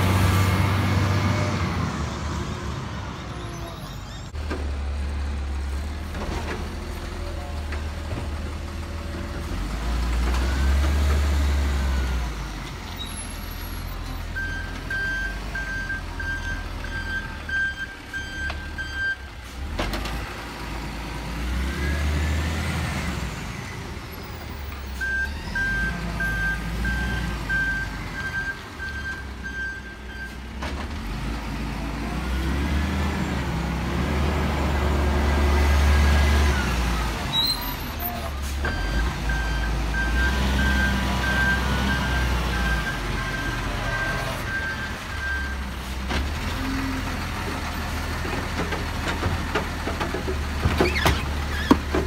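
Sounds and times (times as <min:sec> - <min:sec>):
diesel truck engine revving: 0:19.6 - 0:52.0.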